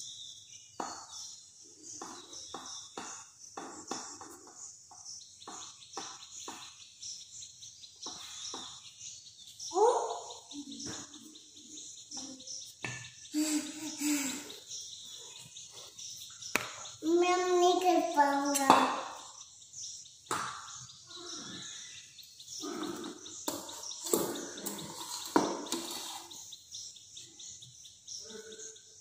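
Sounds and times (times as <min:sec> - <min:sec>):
high chirping: 0:00.0 - 0:29.0
rolling pin on stone board: 0:25.1 - 0:26.3.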